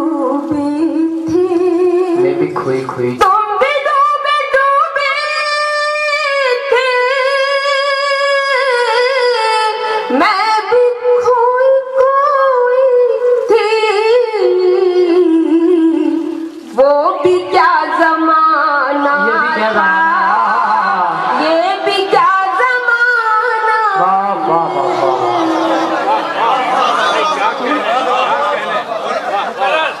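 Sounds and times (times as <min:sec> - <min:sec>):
woman singing slow melody: 0:00.0 - 0:02.3, 0:03.2 - 0:24.3.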